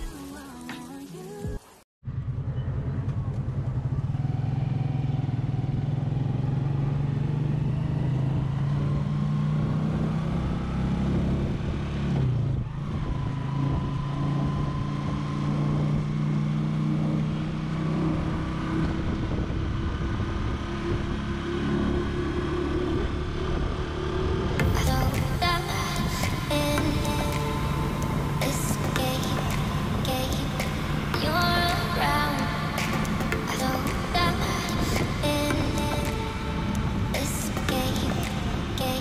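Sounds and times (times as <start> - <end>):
small motorcycle engine running: 2.1 - 25.3.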